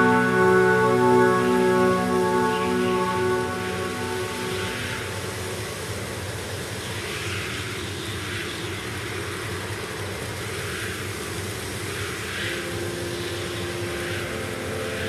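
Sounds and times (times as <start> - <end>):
sustained synth note: 0.0 - 6.0, 12.6 - 15.0
dark ambient synth drone: 0.0 - 7.7, 12.1 - 15.0.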